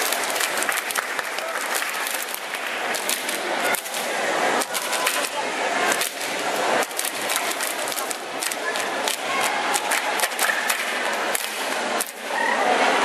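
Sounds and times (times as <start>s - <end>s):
hands clapping and slapping body: 0.0s - 12.2s.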